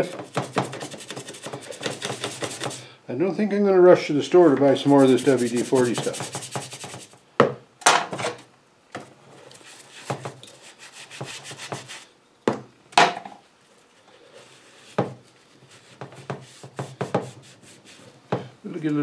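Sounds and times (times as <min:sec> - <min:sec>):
brush scrubbing metal: 0:00.0 - 0:02.9, 0:04.6 - 0:07.2, 0:09.6 - 0:12.1.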